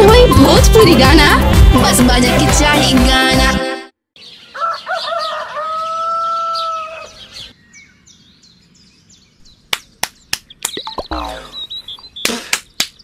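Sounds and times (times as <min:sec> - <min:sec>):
small birds chirping: 0:04.2 - 0:13.0
rooster crowing: 0:04.5 - 0:07.3.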